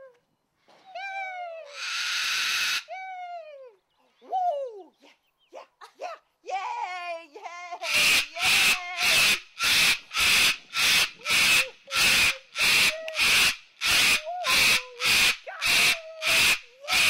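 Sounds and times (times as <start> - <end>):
cockatoo harsh hissing rasps: 1.7 - 2.9, 7.8 - 17.0.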